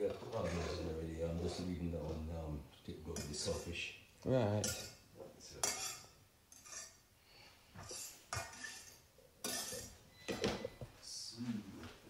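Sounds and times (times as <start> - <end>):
utensil clinking and scraping pot: 3.0 - 3.9, 4.6 - 7.0, 7.7 - 10.0.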